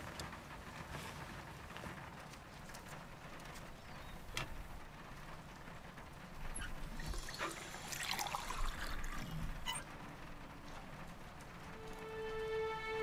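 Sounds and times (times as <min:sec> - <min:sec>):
water pouring into a glass mug: 0:07.0 - 0:09.5.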